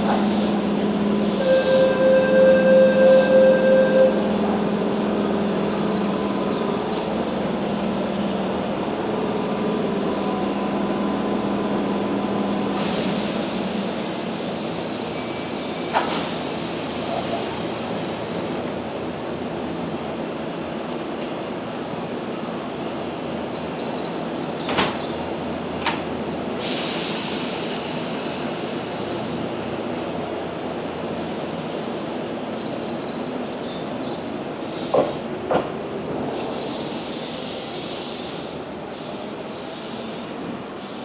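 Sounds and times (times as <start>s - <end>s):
train equipment humming: 0.0s - 21.8s.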